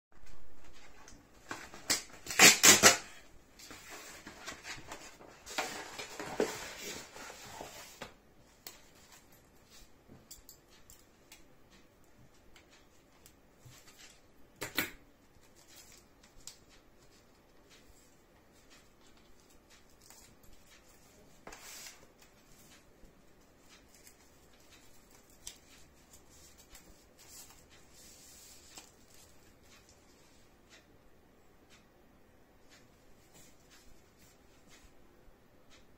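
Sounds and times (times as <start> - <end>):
package rustling and scraping: 0.2 - 8.0
cardboard tearing: 1.9 - 3.1.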